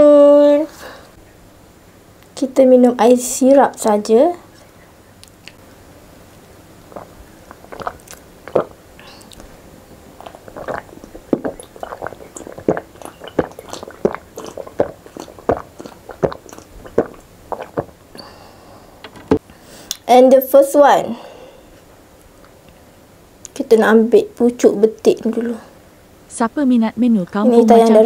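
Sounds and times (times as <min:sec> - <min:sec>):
person gulping a drink: 0:06.9 - 0:18.4.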